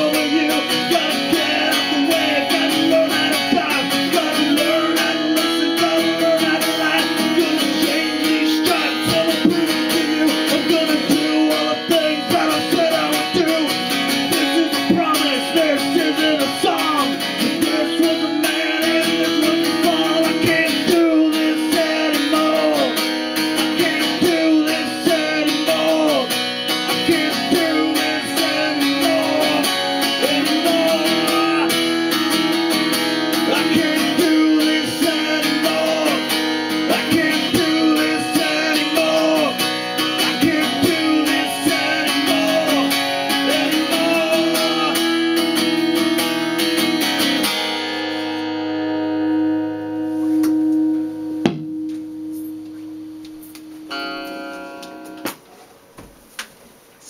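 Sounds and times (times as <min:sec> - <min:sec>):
man singing: 0:00.0 - 0:32.5, 0:33.3 - 0:46.4
acoustic guitar strumming: 0:00.0 - 0:55.6.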